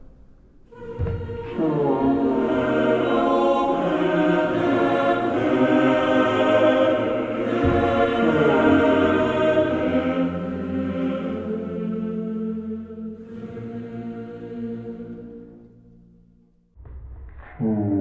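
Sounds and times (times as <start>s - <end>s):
choir singing held chords: 0.7s - 16.4s
deep bass note: 16.8s - 18.0s.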